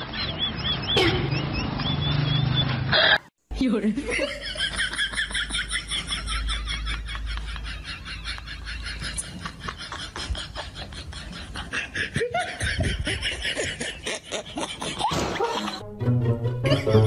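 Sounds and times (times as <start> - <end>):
people laughing: 4.0 - 15.8, 16.6 - 17.0.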